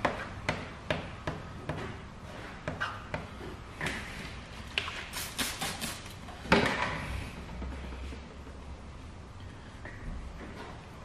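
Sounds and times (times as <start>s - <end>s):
spray bottle spritzing: 4.9s - 6.2s.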